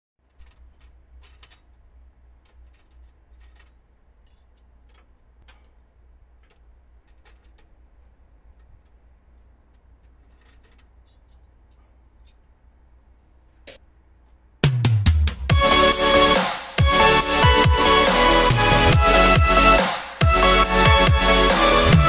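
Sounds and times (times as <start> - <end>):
hand tools clicking and clinking: 0.3 - 7.8.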